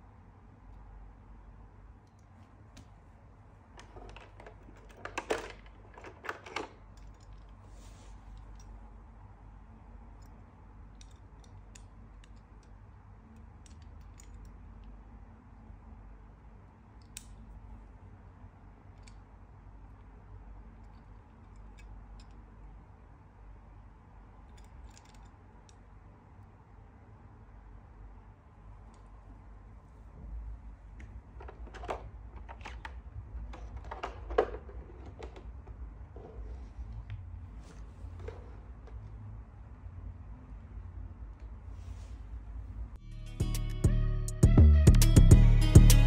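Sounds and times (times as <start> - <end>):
low room hum: 0.0 - 46.0
soft rustle: 7.2 - 8.9, 36.1 - 39.1, 41.6 - 42.8.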